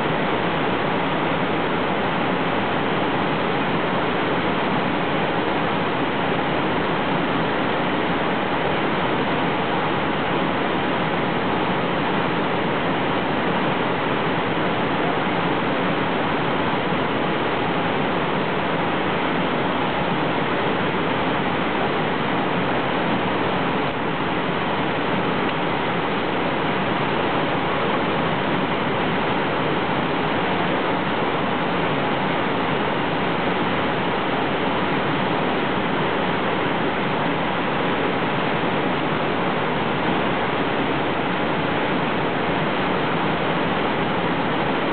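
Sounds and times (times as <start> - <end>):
whitewater rushing over rocks: 0.0 - 44.9.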